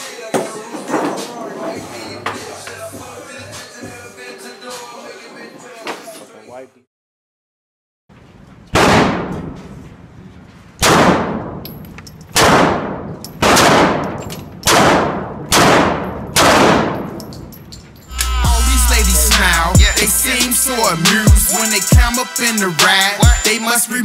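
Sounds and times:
hip-hop music with heavy bass: 0.0s - 5.3s, 18.1s - 24.0s
handgun shots echoing: 12.3s - 17.3s.

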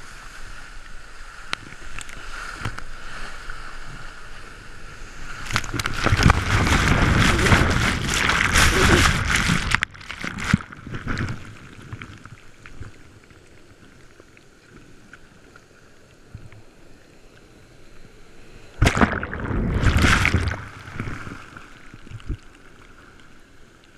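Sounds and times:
surf washing over camera: 0.0s - 12.1s, 18.6s - 22.5s
water splash: 5.4s - 12.3s, 18.7s - 22.5s.

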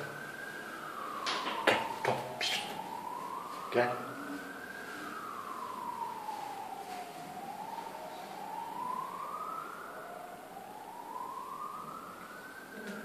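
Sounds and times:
siren wailing: 0.0s - 13.0s.

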